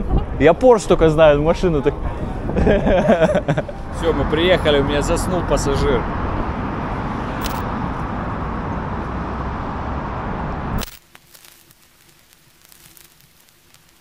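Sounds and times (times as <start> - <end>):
street traffic noise: 0.0 - 11.0
crackling static with clicks: 10.8 - 14.0.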